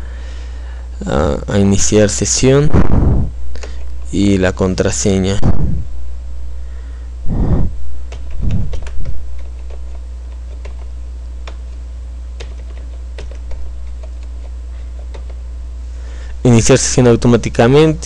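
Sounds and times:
steady low hum: 0:00.0 - 0:18.0
short low sounds: 0:02.7 - 0:03.4, 0:05.4 - 0:06.0, 0:07.2 - 0:09.3
keyboard keys typing: 0:08.1 - 0:11.8, 0:12.4 - 0:15.4.

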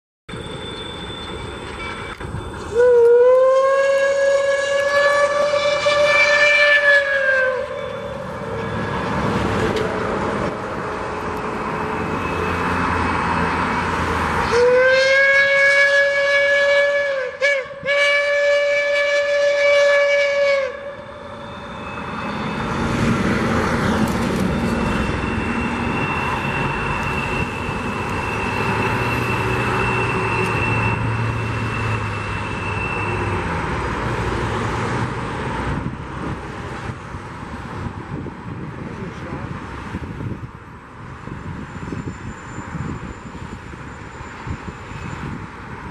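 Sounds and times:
freight train rumbling past: 0:00.3 - 0:45.9
steam locomotive whistle: 0:00.4 - 0:09.9, 0:14.4 - 0:34.2.

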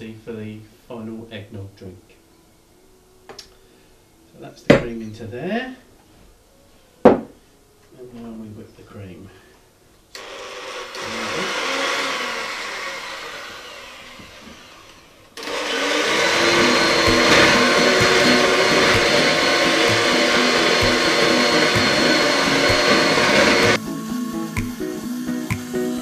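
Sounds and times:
electric hand mixer whirring: 0:10.2 - 0:26.0
thin high whine: 0:12.2 - 0:26.0.

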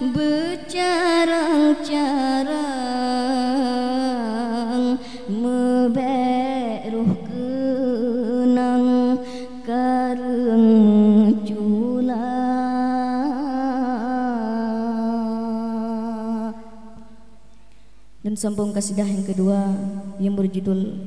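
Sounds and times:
singer breathing: 0:05.0 - 0:05.3, 0:09.2 - 0:09.6, 0:17.5 - 0:18.2.

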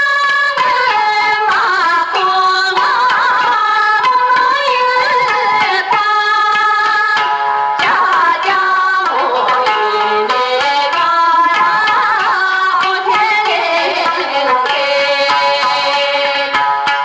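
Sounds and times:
light steady percussion: 0:00.0 - 0:17.0.

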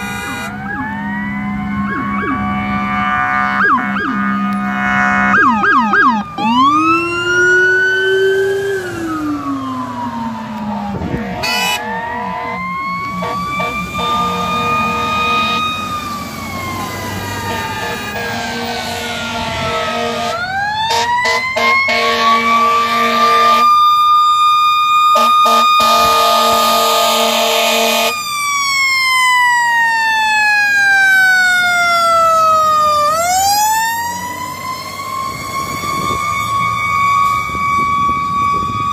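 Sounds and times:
horn blasts: 0:00.0 - 0:00.6, 0:02.6 - 0:05.7, 0:11.1 - 0:15.6, 0:17.5 - 0:23.7, 0:25.2 - 0:28.1
sirens wailing: 0:00.0 - 0:38.9.

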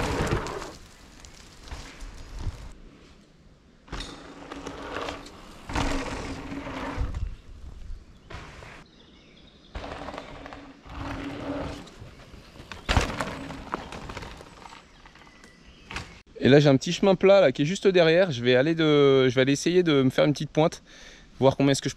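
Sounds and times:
bike tyre and wind noise: 0:00.0 - 0:03.1, 0:03.9 - 0:08.9, 0:09.7 - 0:15.3.

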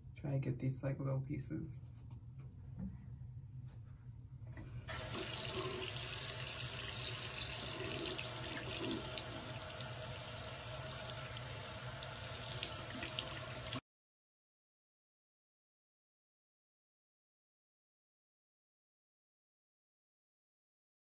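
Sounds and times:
water running from sink tap: 0:04.9 - 0:13.8.

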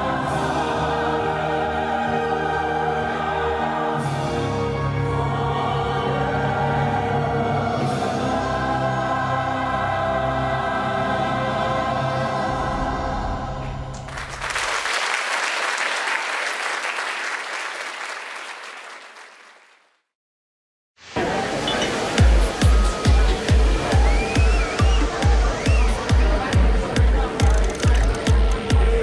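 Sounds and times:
choir holding a chord: 0:00.0 - 0:14.0
backing music: 0:00.0 - 0:14.4, 0:21.2 - 0:29.0
audience applause: 0:14.0 - 0:20.0, 0:21.2 - 0:26.4.

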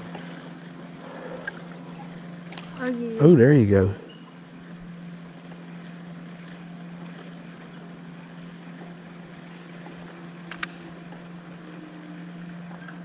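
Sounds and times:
motor humming: 0:00.0 - 0:13.0
short clicks: 0:10.5 - 0:10.9.

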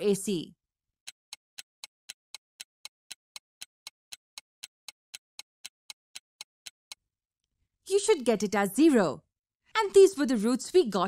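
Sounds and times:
clock ticking: 0:01.0 - 0:07.0.

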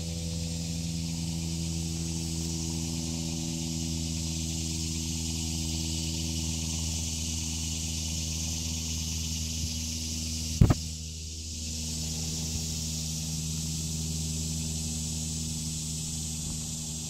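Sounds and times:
engine droning hum: 0:00.0 - 0:17.0
high hiss: 0:00.0 - 0:17.0
sharp bump: 0:10.6 - 0:10.8.

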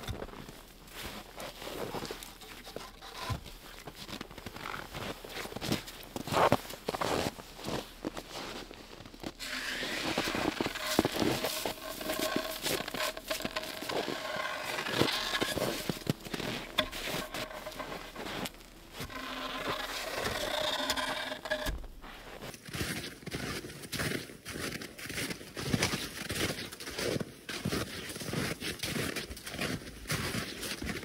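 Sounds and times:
wooden pole scraping and knocking: 0:00.0 - 0:07.3, 0:09.4 - 0:22.5
boots crunching in snow: 0:00.0 - 0:31.0.

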